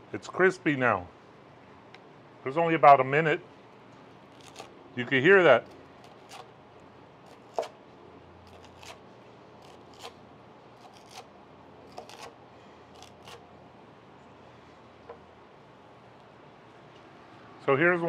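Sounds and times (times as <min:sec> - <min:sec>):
knife crunching crispy skin: 0:04.3 - 0:04.8, 0:05.6 - 0:06.6, 0:07.2 - 0:07.8, 0:08.4 - 0:09.0, 0:09.6 - 0:10.2, 0:10.8 - 0:13.5.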